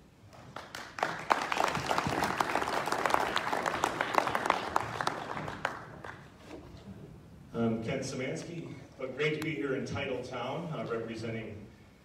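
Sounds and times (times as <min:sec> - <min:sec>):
audience applauding: 0:00.4 - 0:06.4.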